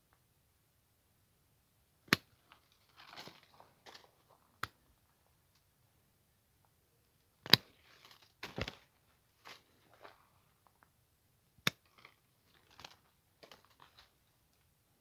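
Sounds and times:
twigs and dry leaves rustling: 2.2 - 5.7, 7.2 - 11.0, 11.8 - 14.7.

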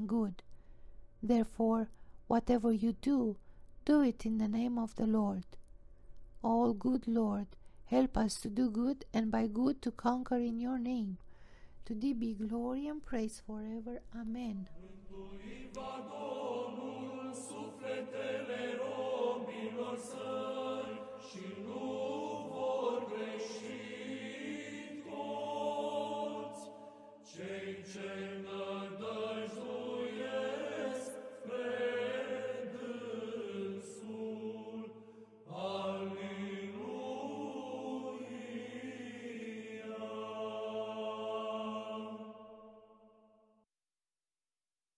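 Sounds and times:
voices chanting: 14.7 - 42.6.

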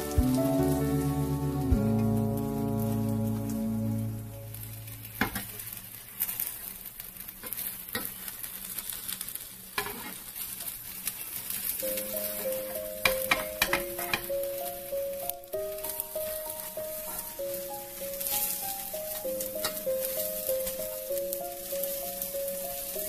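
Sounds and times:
soft background music: 0.0 - 5.5, 11.8 - 23.0
egg batter sizzling in a pan: 0.0 - 23.0.

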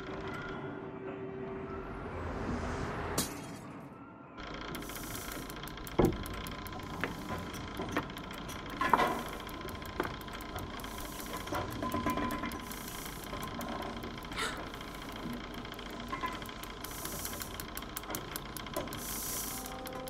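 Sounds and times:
steady mechanical running: 0.0 - 0.7, 4.4 - 20.0
sharp clicks and knocks: 4.4 - 20.0.

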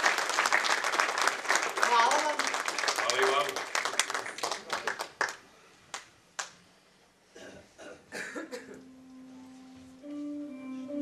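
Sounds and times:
audience applause: 0.0 - 6.5.

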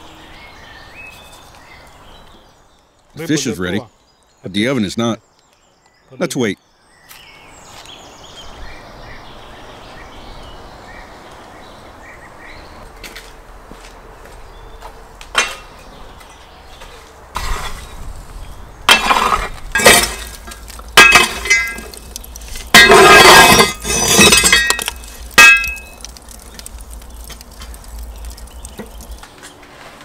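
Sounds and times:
embers and metal clinking: 15.3 - 17.9, 18.9 - 30.0
poker scraping burning coals: 15.4 - 30.0.

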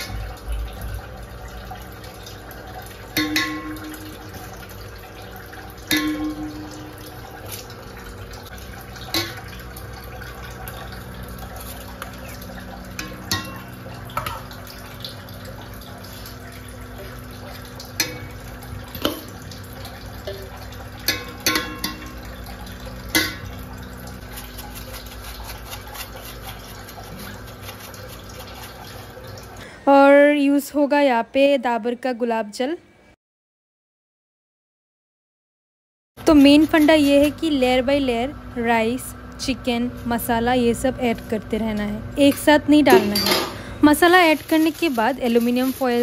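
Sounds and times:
steel ladle clinking on pot: 3.2 - 4.2, 5.8 - 7.1, 9.1 - 9.5, 13.0 - 14.4, 20.2 - 22.3, 23.1 - 23.5, 42.3 - 43.6.

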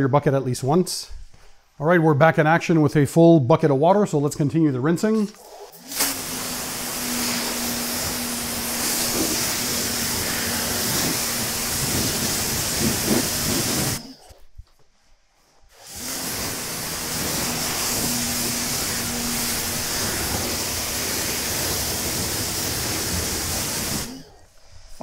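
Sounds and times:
pressure washer spraying water: 5.8 - 14.1, 15.8 - 24.4.

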